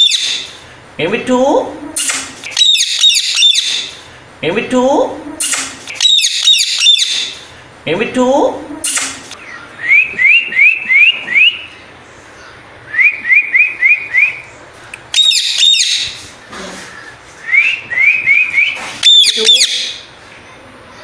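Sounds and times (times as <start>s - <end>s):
parakeet chirping: 0.0s - 0.5s, 2.0s - 4.0s, 5.3s - 7.4s, 15.0s - 16.2s, 17.9s - 20.1s
parakeet harsh screeches: 19.0s - 20.0s.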